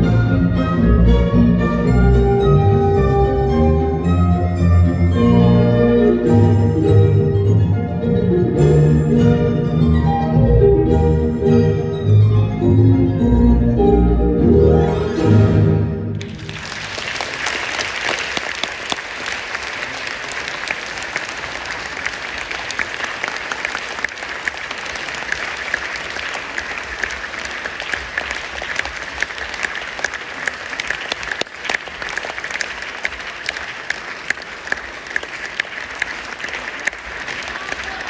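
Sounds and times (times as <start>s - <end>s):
audience applauding: 16.1s - 38.0s.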